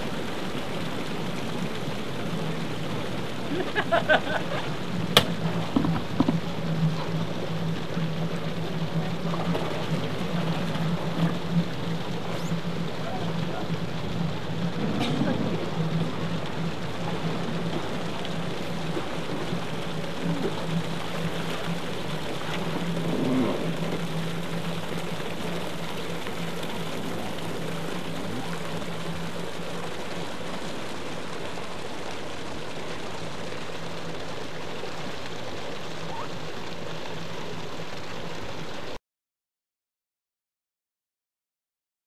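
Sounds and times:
personal watercraft engine idling: 0:00.0 - 0:39.0
water hissing: 0:09.0 - 0:32.0.

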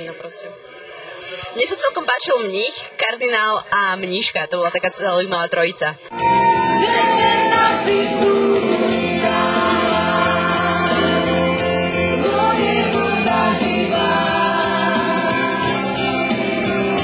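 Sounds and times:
dance band music: 0:06.1 - 0:17.0
woman singing into a microphone: 0:06.6 - 0:11.5, 0:12.1 - 0:16.3.

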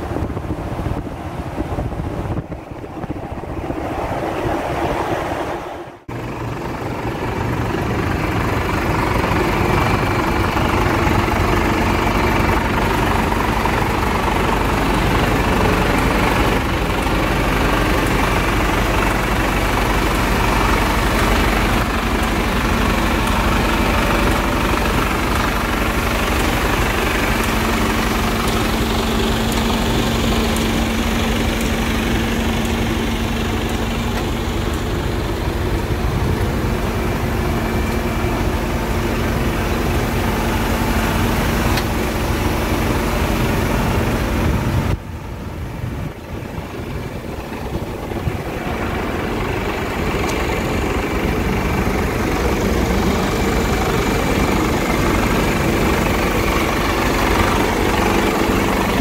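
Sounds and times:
wind on microphone: 0:00.0 - 0:07.4, 0:43.4 - 0:49.4
diesel engine idling: 0:00.0 - 0:59.0
road noise: 0:00.0 - 0:59.0.

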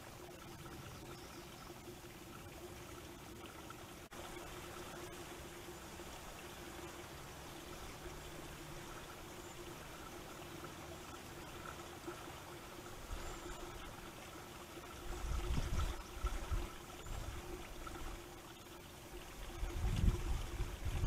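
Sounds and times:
trickling water: 0:00.0 - 0:21.0
wind buffeting microphone: 0:15.2 - 0:17.4, 0:19.5 - 0:21.0.

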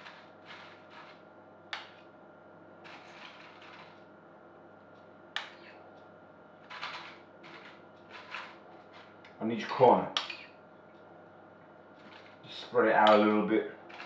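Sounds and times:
spoon scraping a bowl: 0:02.8 - 0:04.0.

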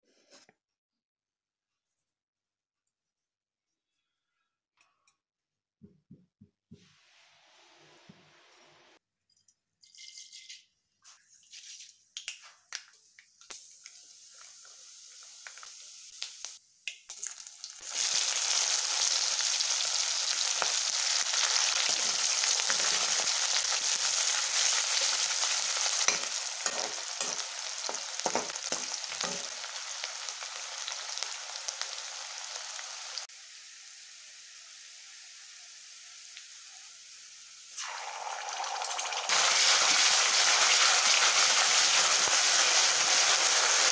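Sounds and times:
onions sizzling in a wok: 0:13.4 - 0:43.9
ladle knocking and scraping pan: 0:26.1 - 0:29.6.

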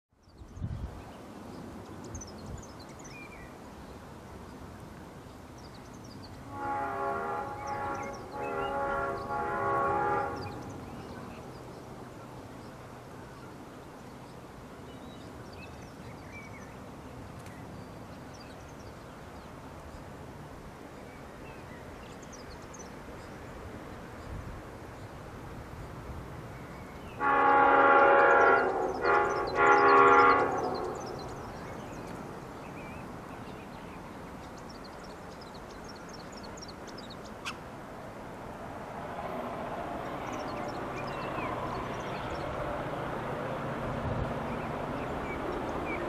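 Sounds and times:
birds chirping: 0:00.2 - 0:20.2, 0:26.4 - 0:37.7, 0:39.0 - 0:43.4, 0:44.2 - 0:46.0
train horn blasts: 0:06.5 - 0:10.8, 0:27.2 - 0:31.4.

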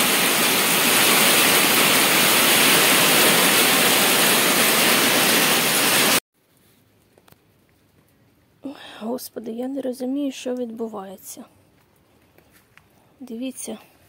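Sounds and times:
heavy rain on concrete: 0:00.0 - 0:06.2.

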